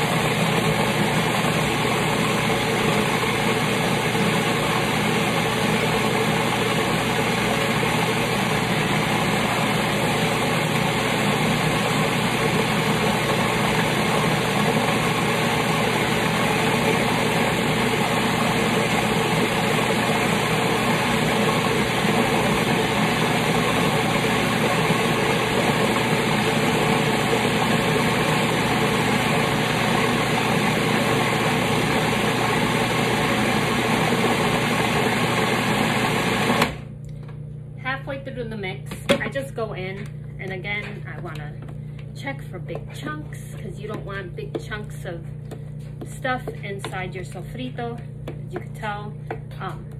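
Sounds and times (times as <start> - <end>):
food processor blade whirring: 0.0 - 36.9.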